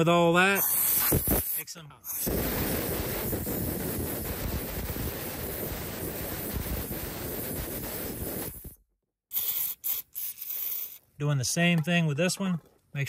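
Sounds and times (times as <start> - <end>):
compressed air blast: 0.5 - 11.0.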